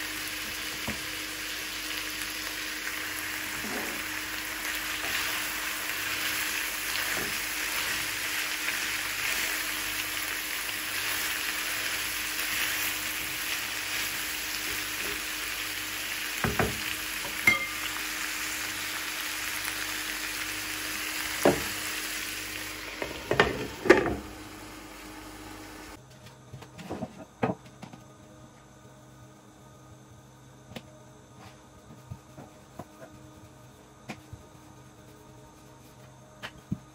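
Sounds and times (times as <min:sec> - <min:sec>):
food sizzling in a frying pan: 0:00.0 - 0:26.0.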